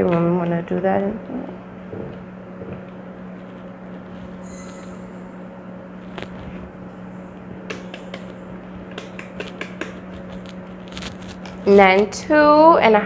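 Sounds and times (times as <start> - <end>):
low hum: 1.2 - 11.7
packet rustling: 9.0 - 11.7.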